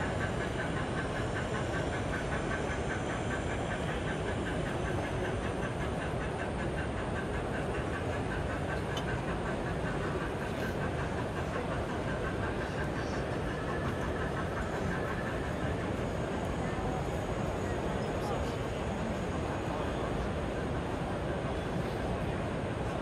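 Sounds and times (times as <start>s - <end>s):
model steam locomotive chuffing: 0.0s - 23.0s.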